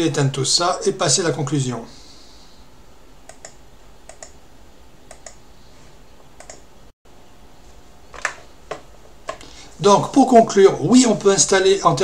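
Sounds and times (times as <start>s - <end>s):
computer mouse button clicks: 5.1s - 5.4s, 6.4s - 6.6s.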